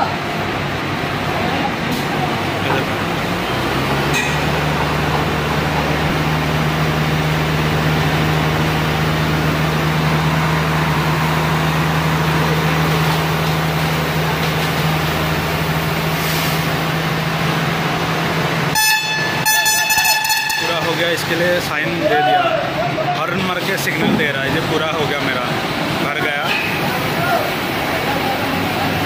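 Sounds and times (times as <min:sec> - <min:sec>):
diesel engines running: 0:00.0 - 0:29.0
vehicle horn honking: 0:18.7 - 0:21.0.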